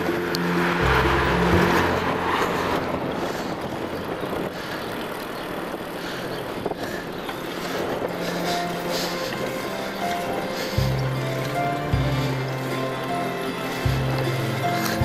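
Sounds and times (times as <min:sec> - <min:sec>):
background music: 0:00.0 - 0:03.7, 0:08.0 - 0:15.0
wind rushing: 0:00.0 - 0:11.0
bicycle rolling noise: 0:00.0 - 0:15.0.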